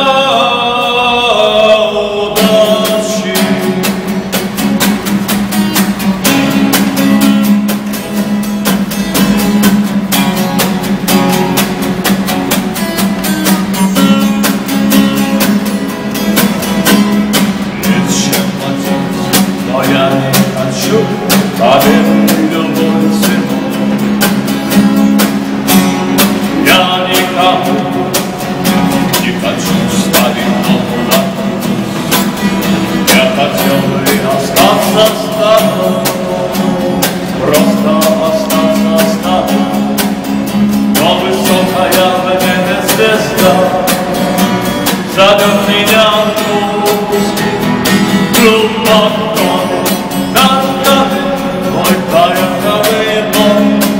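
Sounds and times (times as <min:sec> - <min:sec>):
man singing: 0:00.0 - 0:04.7, 0:13.4 - 0:15.8, 0:16.9 - 0:24.5, 0:26.2 - 0:53.9
acoustic guitar strumming: 0:00.0 - 0:53.9.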